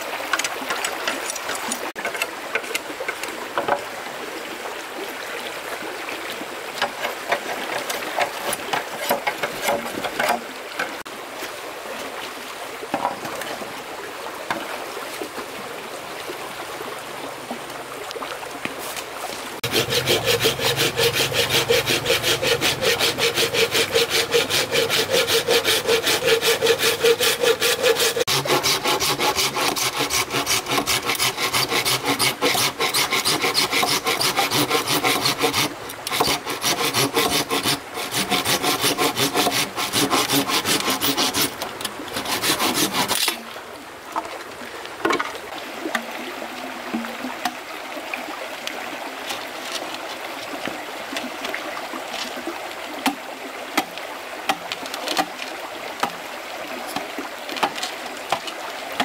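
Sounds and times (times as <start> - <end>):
faint trickle of a stream: 0.0 - 59.0
saw cutting wood: 6.8 - 10.4, 19.6 - 43.4.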